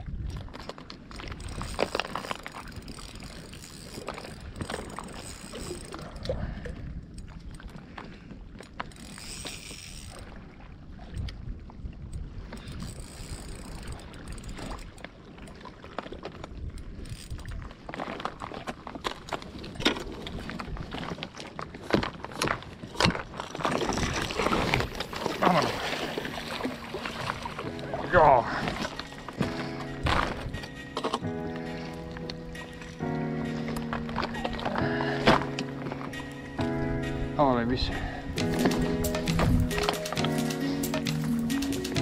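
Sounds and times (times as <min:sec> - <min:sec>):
wind on microphone: 0:00.0 - 0:15.6, 0:19.4 - 0:42.0
water sloshing against rocks: 0:00.0 - 0:42.0
fishing reel cranking: 0:01.3 - 0:06.3, 0:08.8 - 0:10.2, 0:12.6 - 0:15.0, 0:16.9 - 0:17.5, 0:38.4 - 0:42.0
splashes and knocks: 0:17.6 - 0:31.3, 0:32.6 - 0:36.7.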